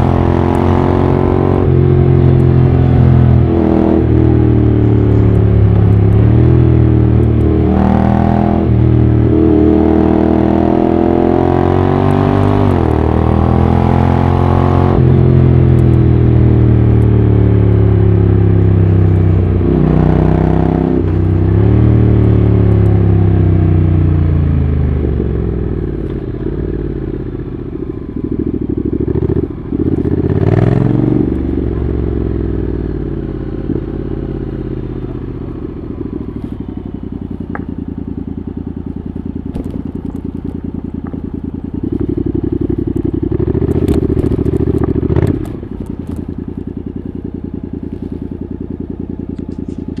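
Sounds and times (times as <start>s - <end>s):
motorcycle engine revving: 0.0s - 50.0s.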